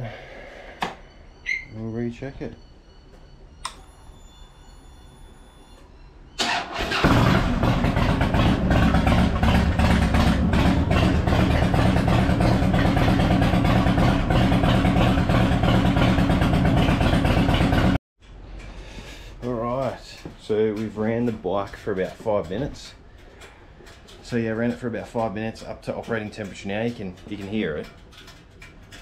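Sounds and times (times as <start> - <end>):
electric starter cranking: 6.4 - 17.8
motorcycle engine idling: 6.9 - 18.0.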